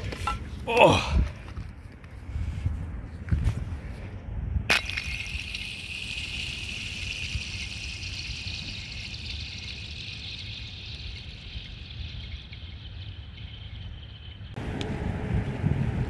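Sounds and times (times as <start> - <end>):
pond ice ringing: 4.7 - 14.6.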